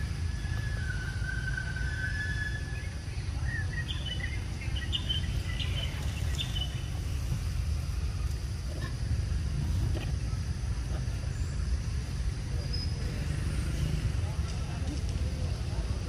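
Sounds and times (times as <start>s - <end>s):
bird calls: 0.2s - 7.0s
thin held whistle: 0.3s - 4.3s.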